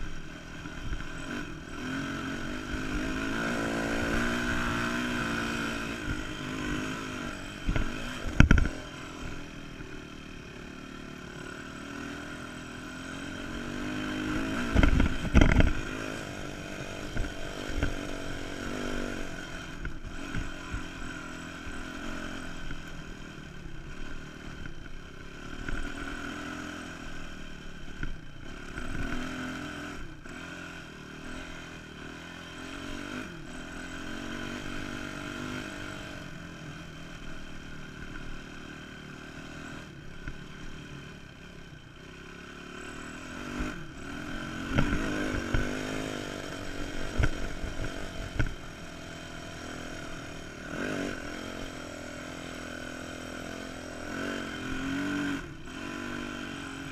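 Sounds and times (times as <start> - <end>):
dirt bike engine revving: 0.0 - 56.9.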